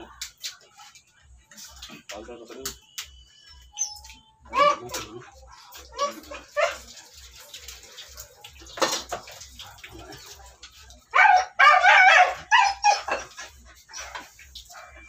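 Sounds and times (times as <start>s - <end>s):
dog yelping: 3.8s - 5.2s, 5.9s - 6.9s, 11.1s - 14.4s
dog whining: 11.7s - 14.3s.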